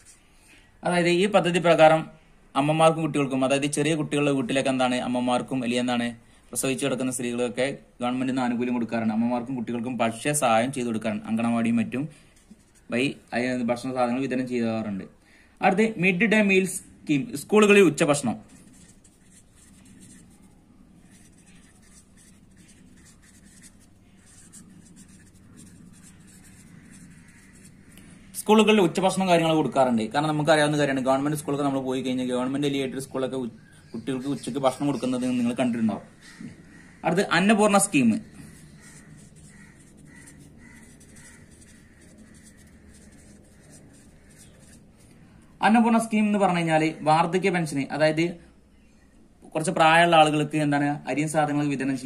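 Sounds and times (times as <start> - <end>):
marker pen writing on paper: 0.0 - 0.2, 12.1 - 12.9, 17.9 - 28.1, 36.3 - 45.2.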